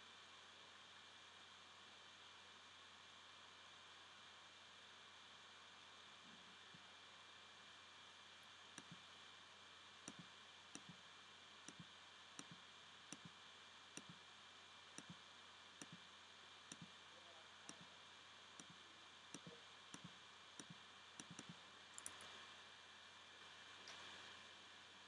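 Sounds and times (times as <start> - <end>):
computer mouse clicks: 8.7 - 9.1, 10.1 - 11.0, 11.7 - 13.4, 14.0 - 14.2, 15.0 - 15.2, 15.8 - 16.0, 16.7 - 17.0, 17.7 - 17.9, 18.6 - 22.4.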